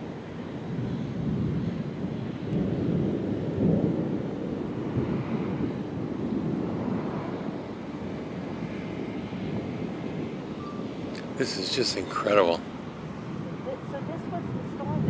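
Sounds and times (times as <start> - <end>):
thunder rumbling: 0.0 - 15.0.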